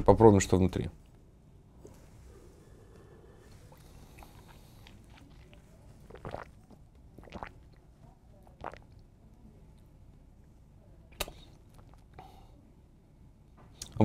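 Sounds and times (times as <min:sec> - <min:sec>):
airy slurp: 0:01.8 - 0:07.8, 0:08.5 - 0:09.0
short mouth sounds: 0:06.1 - 0:06.5, 0:11.2 - 0:12.0.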